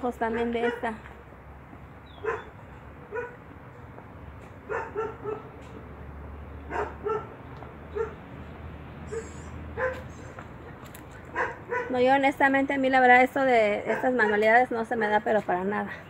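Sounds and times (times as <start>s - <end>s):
dog yapping: 2.2s - 2.5s, 4.7s - 5.5s, 6.7s - 7.3s, 9.1s - 10.3s, 11.4s - 11.9s.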